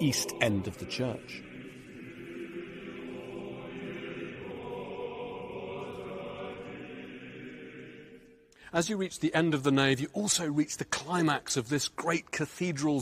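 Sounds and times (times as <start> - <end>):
choir holding long notes: 0.0 - 8.5.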